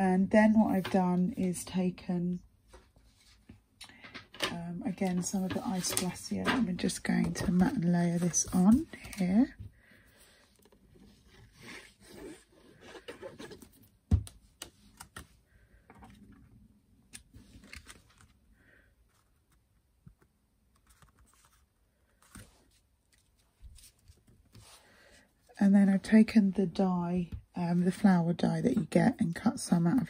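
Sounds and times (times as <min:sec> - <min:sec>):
card rustling and scraping: 0:05.0 - 0:09.5, 0:10.5 - 0:13.9, 0:20.7 - 0:24.8.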